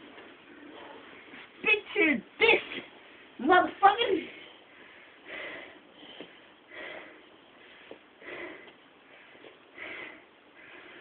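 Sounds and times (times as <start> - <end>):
person breathing hard: 4.6 - 11.0.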